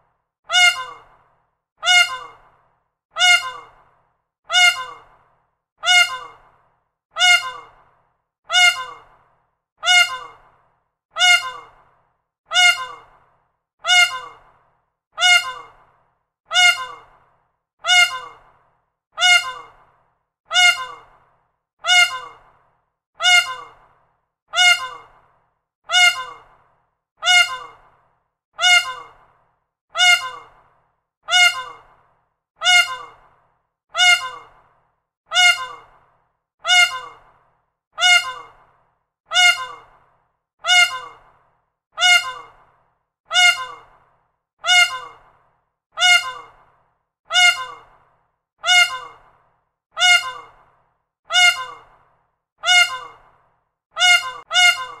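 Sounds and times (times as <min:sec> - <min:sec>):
peacock calling: 0:00.5 - 0:01.1, 0:01.8 - 0:02.4, 0:03.2 - 0:03.8, 0:04.5 - 0:05.1, 0:05.8 - 0:06.4, 0:07.2 - 0:07.8, 0:08.5 - 0:09.1, 0:09.8 - 0:10.4, 0:11.2 - 0:11.8, 0:12.5 - 0:13.1, 0:13.8 - 0:14.4, 0:15.2 - 0:15.8, 0:16.5 - 0:17.1, 0:17.8 - 0:18.4, 0:19.2 - 0:19.8, 0:20.5 - 0:21.1, 0:21.8 - 0:22.4, 0:23.2 - 0:23.8, 0:24.6 - 0:25.1, 0:25.9 - 0:26.5, 0:27.2 - 0:27.8, 0:28.6 - 0:29.2, 0:30.0 - 0:30.6, 0:31.3 - 0:31.9, 0:32.6 - 0:33.2, 0:34.0 - 0:34.6, 0:35.3 - 0:35.9, 0:36.6 - 0:37.2, 0:38.0 - 0:38.6, 0:39.3 - 0:39.9, 0:40.6 - 0:41.2, 0:42.0 - 0:42.6, 0:43.3 - 0:43.9, 0:44.6 - 0:45.2, 0:46.0 - 0:46.6, 0:47.3 - 0:47.9, 0:48.6 - 0:49.2, 0:50.0 - 0:50.6, 0:51.3 - 0:51.9, 0:52.6 - 0:53.2, 0:54.0 - 0:55.0.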